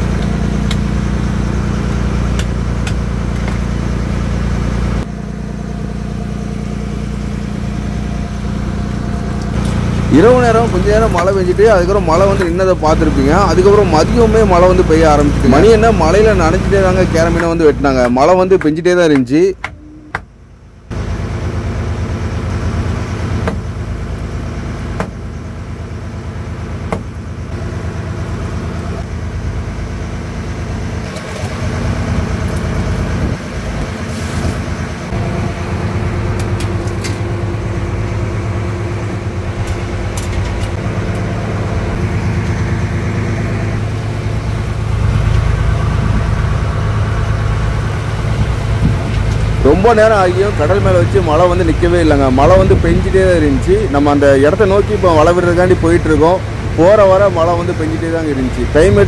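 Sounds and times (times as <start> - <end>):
boat engine running: 0.0 - 59.0
sharp knocks: 23.4 - 23.6, 25.0 - 25.2, 26.9 - 27.1.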